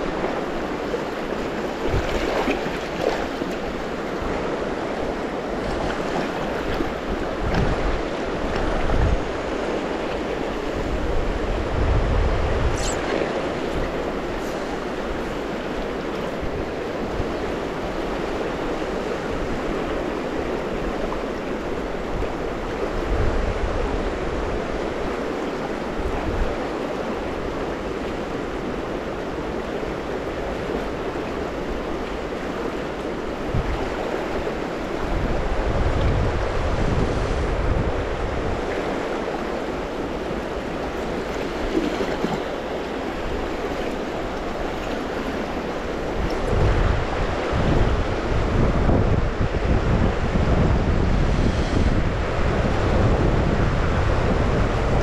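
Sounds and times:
wind buffeting microphone: 0.0s - 21.1s, 30.3s - 55.0s.

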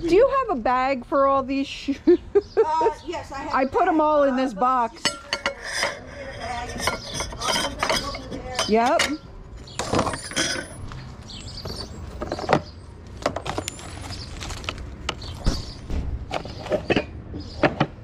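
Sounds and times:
goods being handled: 5.0s - 17.9s.

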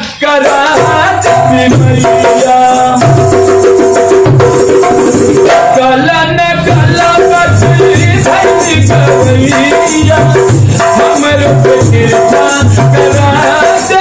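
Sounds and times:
hand drum beating: 0.5s - 5.9s, 6.6s - 14.0s
man singing long held notes: 5.5s - 14.0s.

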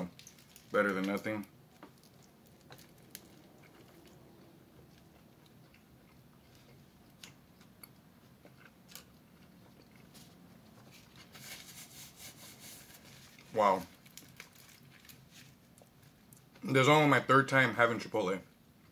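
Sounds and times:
person chewing food: 1.6s - 11.3s.

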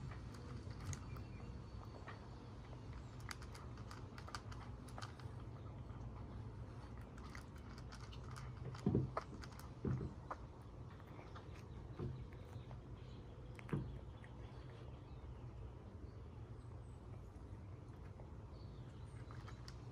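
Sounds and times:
cat chewing crunches: 0.0s - 19.9s.

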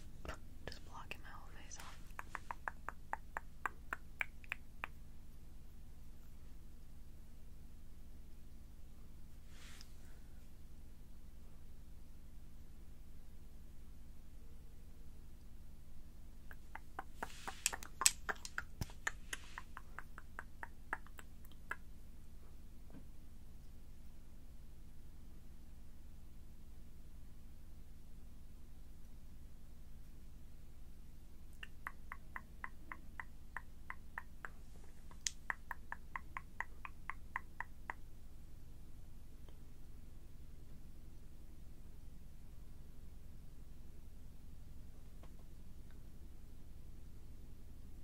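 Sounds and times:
soft breathy hiss: 0.0s - 5.0s, 8.3s - 11.8s, 16.0s - 23.8s, 31.5s - 38.0s
light even tapping: 1.7s - 4.6s, 16.5s - 21.7s
wet mouth clicks and smacks: 1.7s - 4.6s, 16.5s - 21.8s, 33.9s - 37.7s.

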